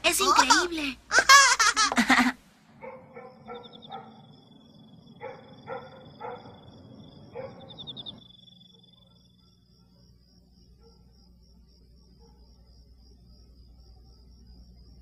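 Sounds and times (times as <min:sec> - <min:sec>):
faint low hum: 0:00.0 - 0:15.0
dog barking: 0:02.8 - 0:04.4, 0:05.1 - 0:08.1, 0:10.8 - 0:11.1, 0:12.2 - 0:12.6
high insect-like trill: 0:03.4 - 0:15.0.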